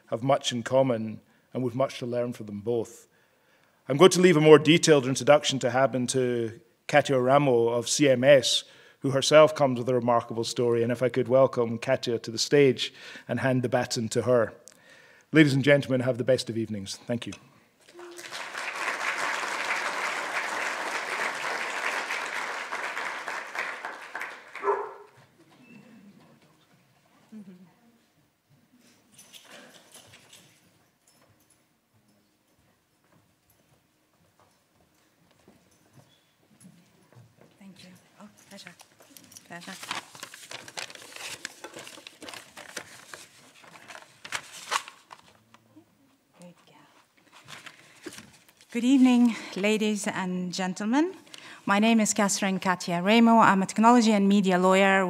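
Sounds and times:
audience applauding: 17.9 - 25.1
papers rustling near microphone: 38.4 - 45.6, 47.2 - 49.3.

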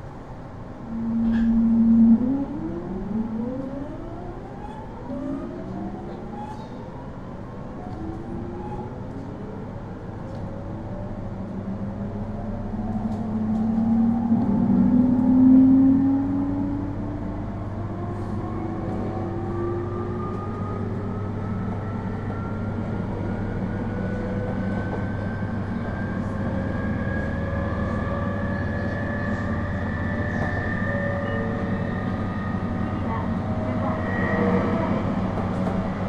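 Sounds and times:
rumble of wheels on rails: 0.0 - 36.0
train motor whine rising: 0.9 - 4.4.

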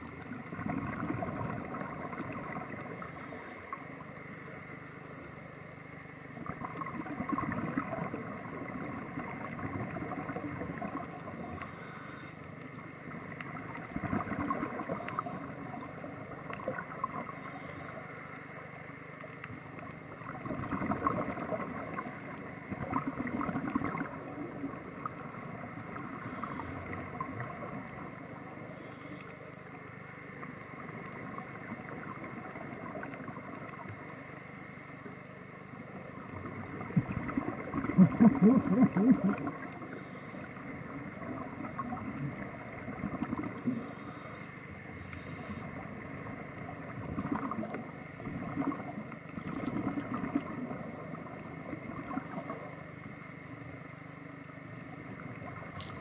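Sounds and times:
low underwater hum: 0.0 - 56.0
regulator hiss on inhalation: 3.0 - 5.5, 11.2 - 12.4, 17.4 - 18.7, 26.2 - 26.9, 28.6 - 29.7, 38.6 - 40.6, 43.5 - 45.8
bubbling exhalation rush: 37.0 - 39.7.

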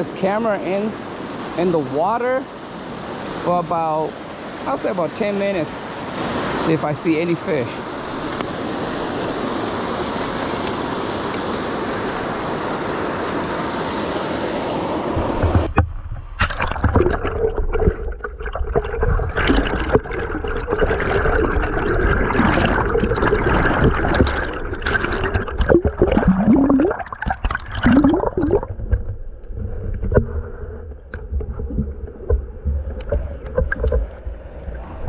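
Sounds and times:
creek water rushing underwater: 0.0 - 35.0
clicks and gurgles: 15.2 - 35.0.

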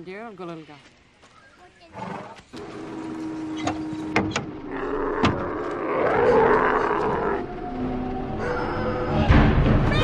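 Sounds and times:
old car pulling up on dirt: 2.4 - 8.6.

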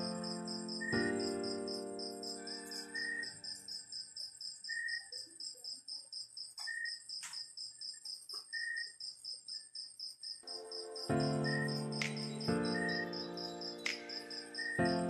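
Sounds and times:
cricket chirping: 0.0 - 15.0
sustained musical notes: 10.5 - 15.0.

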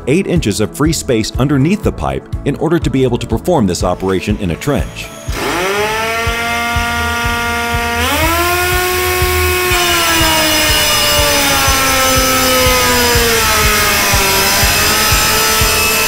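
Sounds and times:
pneumatic saw motor whine: 4.1 - 16.0.

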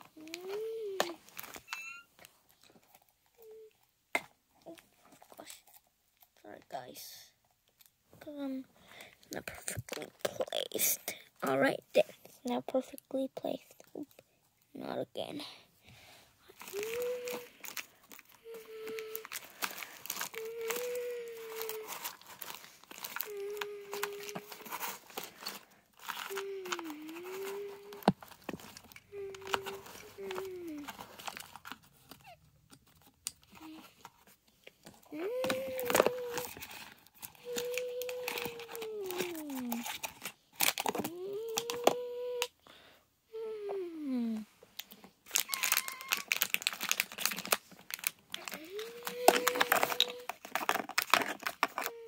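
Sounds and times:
paper and plastic crinkling: 0.0 - 3.6, 8.2 - 14.2, 16.0 - 42.2, 44.8 - 52.0
plastic toy clicks and rattles: 45.3 - 52.0.

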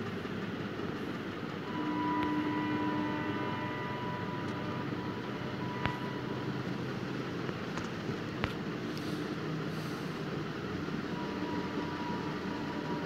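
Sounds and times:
steady background noise: 0.0 - 13.0
faint held tone: 1.6 - 7.4, 11.1 - 13.0.

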